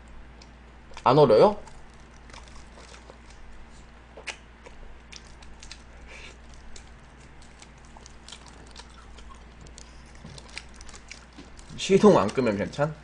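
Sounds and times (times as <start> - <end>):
chewing crunchy chicken: 0.4 - 12.9
wet mouth clicks: 4.2 - 6.8.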